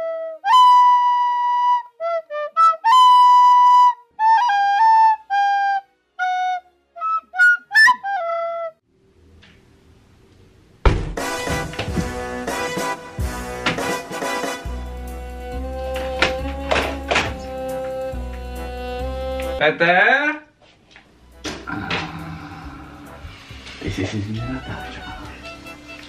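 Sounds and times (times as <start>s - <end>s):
solo flute melody: 0.0s - 8.8s, 12.5s - 19.6s, 24.4s - 26.0s
loud music with brass: 11.2s - 19.6s.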